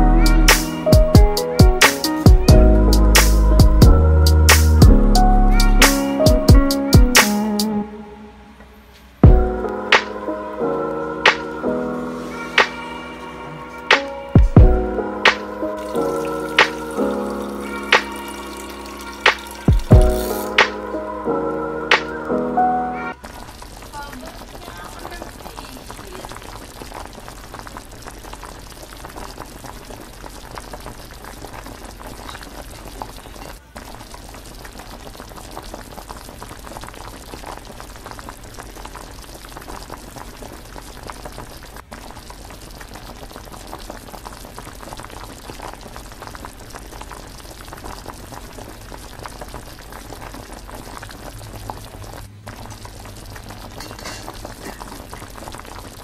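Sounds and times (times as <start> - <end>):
liquid boiling in a saucepan: 14.6 - 20.9, 23.2 - 56.0.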